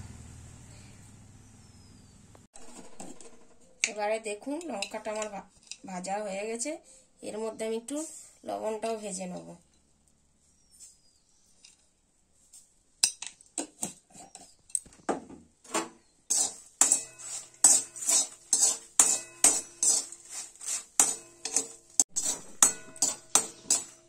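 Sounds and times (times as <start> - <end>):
metal spoon scraping a metal pan: 2.6 - 5.9, 13.6 - 14.6, 16.3 - 24.0.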